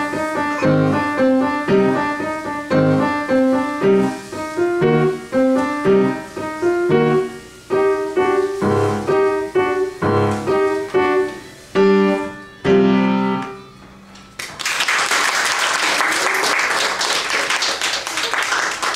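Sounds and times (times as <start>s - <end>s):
upright piano playing: 0.0s - 14.6s
audience applauding: 14.3s - 18.9s.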